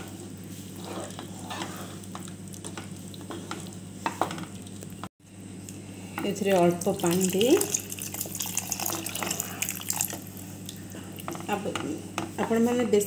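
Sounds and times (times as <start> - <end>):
spatula scraping a wok: 0.0 - 2.2
soft simmering sizzle: 0.0 - 12.5.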